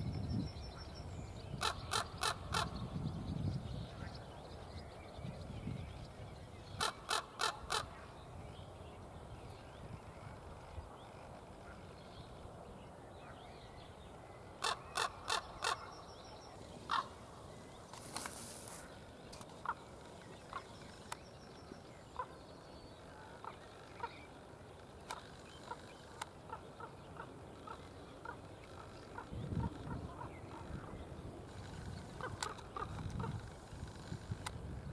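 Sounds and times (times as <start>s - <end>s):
raven calling: 1.6s - 2.8s, 6.8s - 8.1s, 14.6s - 16.1s, 16.8s - 17.4s, 31.5s - 34.3s.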